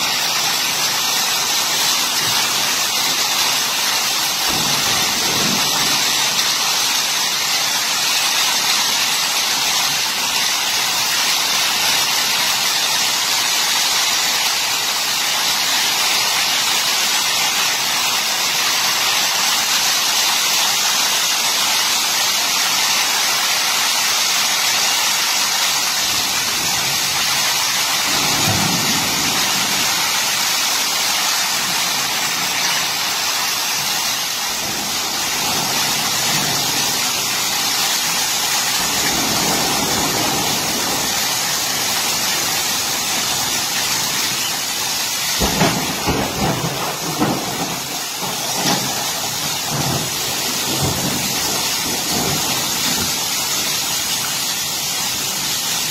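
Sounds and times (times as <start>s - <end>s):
heavy rain pouring: 0.0s - 55.9s
wind gusts: 34.4s - 44.1s.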